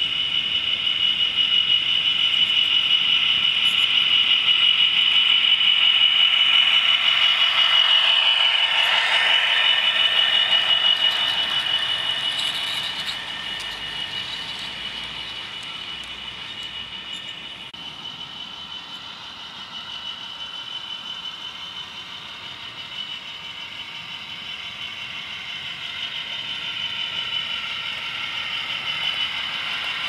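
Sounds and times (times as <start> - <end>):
high whine: 0.0 - 19.3, 26.3 - 30.0.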